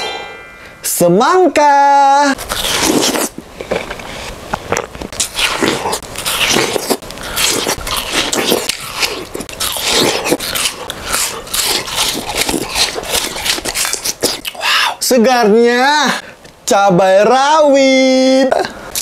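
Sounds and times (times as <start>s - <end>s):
biting into watermelon: 2.4s - 15.0s
juicy crunchy chewing: 2.4s - 15.0s.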